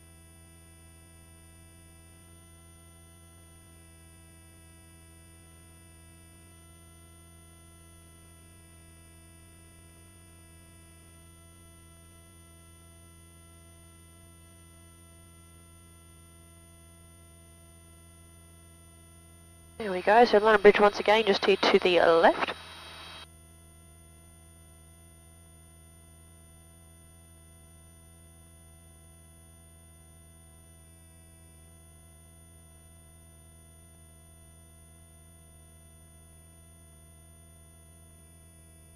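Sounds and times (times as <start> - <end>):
intercom hum: 19.8 - 23.2.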